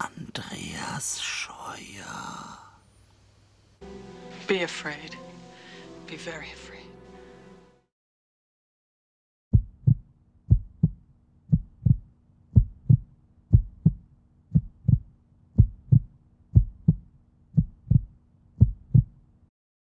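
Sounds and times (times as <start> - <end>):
heartbeat double thump: 9.5 - 19.2.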